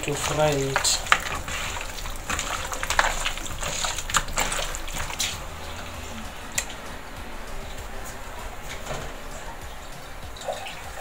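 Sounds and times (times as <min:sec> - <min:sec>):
wet squelching of hands in bowl: 0:00.0 - 0:11.0.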